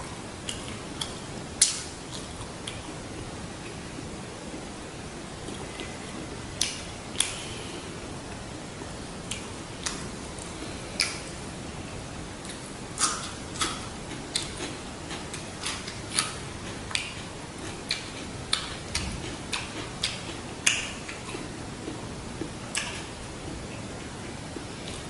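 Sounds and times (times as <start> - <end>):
faint steady hiss: 0.0 - 25.0
wet clicks and smacks of eating: 0.5 - 2.9, 6.6 - 7.4, 9.3 - 11.3, 12.4 - 23.1.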